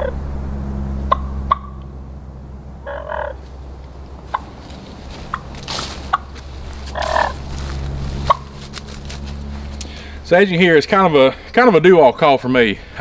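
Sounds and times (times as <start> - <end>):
turkey call yelps: 1.1 - 1.8, 2.8 - 3.4, 6.9 - 7.4
turkey call clucks: 1.1 - 1.9, 2.8 - 3.4, 4.2 - 4.5, 5.2 - 7.4, 8.2 - 8.5.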